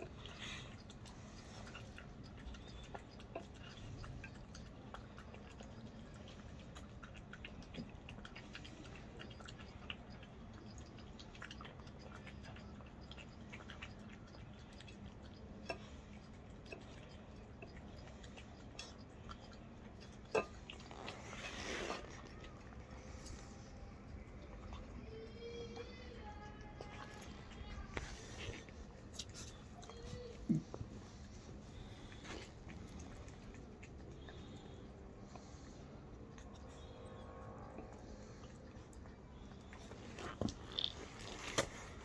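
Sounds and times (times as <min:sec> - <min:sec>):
puppy chewing food: 0:00.0 - 0:42.0.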